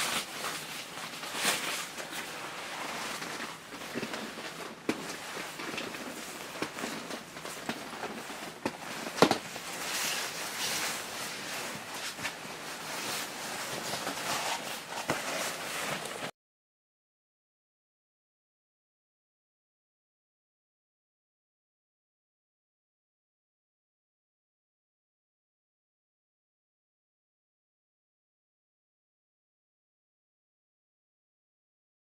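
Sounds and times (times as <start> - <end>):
nylon fabric rustling: 0.0 - 16.3.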